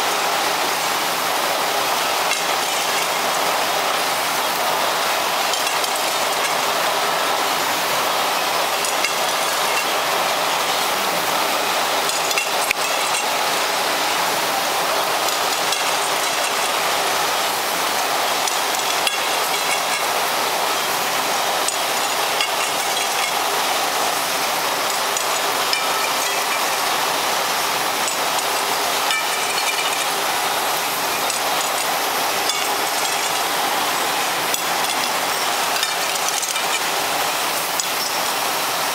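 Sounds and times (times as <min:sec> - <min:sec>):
machine hissing: 0:00.0 - 0:38.9
mechanical clicking and clinking: 0:05.4 - 0:06.7, 0:12.0 - 0:13.8, 0:15.1 - 0:17.2, 0:18.2 - 0:20.2, 0:21.6 - 0:24.0, 0:28.0 - 0:30.5, 0:31.2 - 0:38.1.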